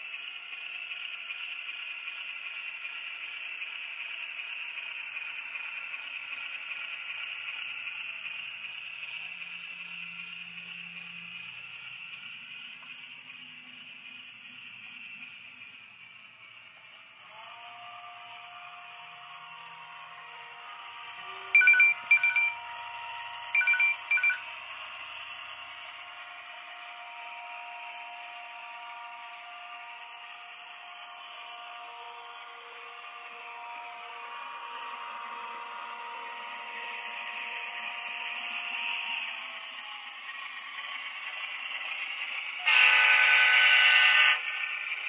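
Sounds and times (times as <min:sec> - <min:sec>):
tinny diesel engine drone: 0:00.0 - 0:45.0
model train air horn blasts: 0:17.5 - 0:21.6, 0:31.6 - 0:36.8, 0:42.6 - 0:44.6.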